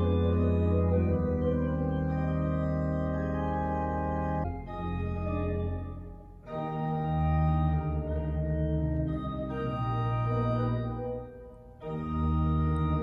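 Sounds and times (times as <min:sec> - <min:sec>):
pipe organ chords: 0:00.0 - 0:13.0.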